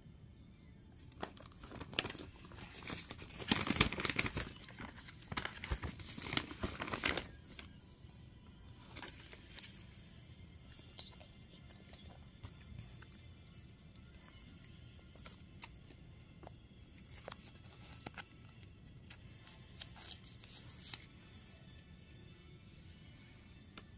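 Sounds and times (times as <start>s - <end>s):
paper crinkling and tearing: 1.0s - 7.8s, 8.8s - 10.0s, 14.0s - 21.7s.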